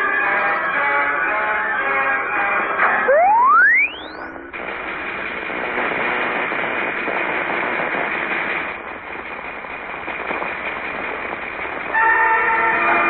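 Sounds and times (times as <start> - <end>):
ray beam multi-pitch tone: 3.1 - 4.5
electrical crackling sizzle: 3.1 - 13.0.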